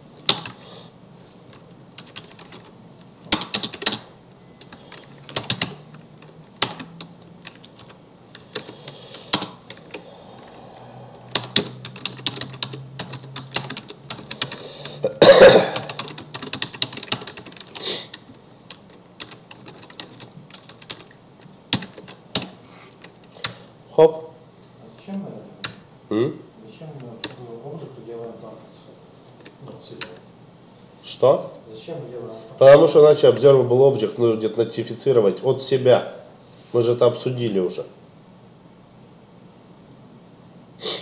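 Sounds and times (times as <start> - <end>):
computer keyboard typing: 0.2 - 0.6, 1.5 - 10.6, 11.3 - 15.0, 15.6 - 23.6, 27.0 - 27.5.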